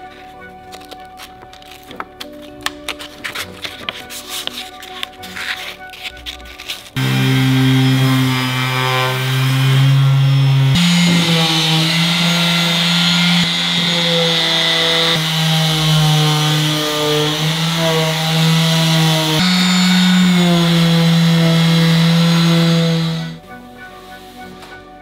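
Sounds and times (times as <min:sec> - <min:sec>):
electric power tool running: 0:07.0 - 0:23.4
hissing cutting noise: 0:07.0 - 0:23.4.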